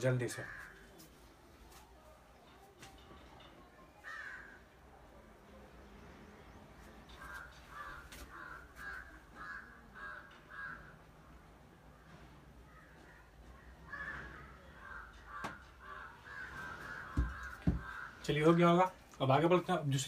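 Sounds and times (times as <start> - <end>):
crow cawing: 0.3 - 0.8, 4.0 - 4.7, 7.2 - 11.1, 13.8 - 18.3.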